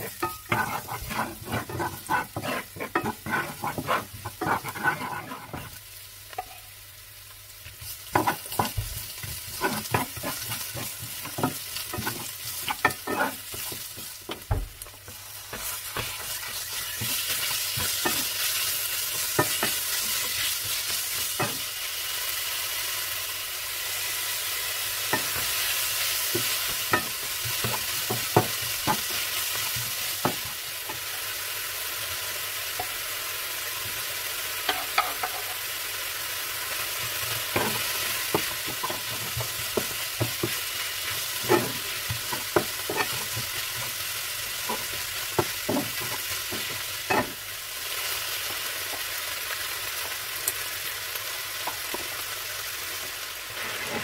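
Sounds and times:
spatula scraping a pan: 0.0s - 6.6s, 7.8s - 21.7s, 25.1s - 31.1s, 37.0s - 47.4s, 53.5s - 54.0s
food sizzling in a frying pan: 0.0s - 54.0s.

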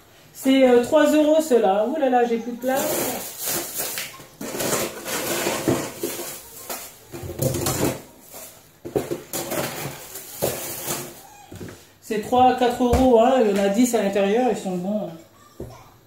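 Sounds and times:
boxes and tubs scraping and knocking: 2.6s - 11.8s.

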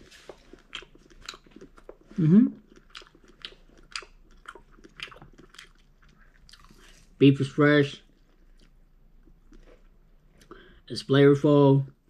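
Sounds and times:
person chewing noodles: 0.0s - 7.2s, 8.1s - 10.6s
person humming: 2.2s - 2.6s.

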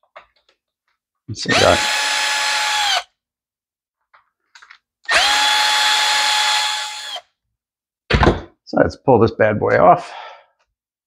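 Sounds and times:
cordless screwdriver motor whining: 1.5s - 3.1s, 5.1s - 7.3s.

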